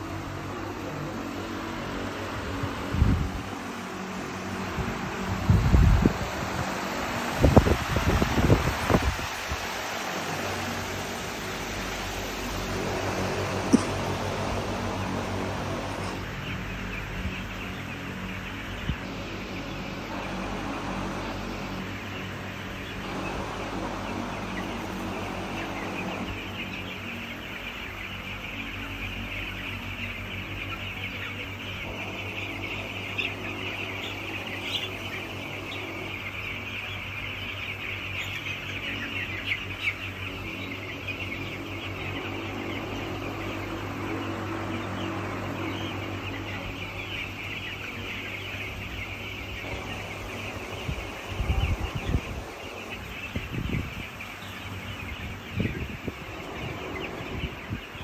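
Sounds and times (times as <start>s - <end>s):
chicks peeping: 0.0s - 58.0s
steady low hum: 0.0s - 58.0s.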